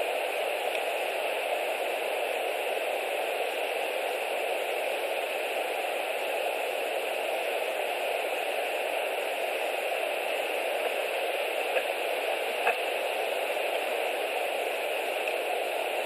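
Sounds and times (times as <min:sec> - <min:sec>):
steady microphone hiss: 0:00.0 - 0:16.0.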